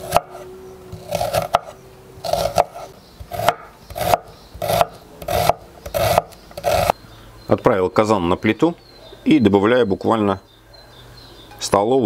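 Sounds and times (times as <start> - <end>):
knife dicing onion on board: 1.0 - 1.7, 2.3 - 6.9.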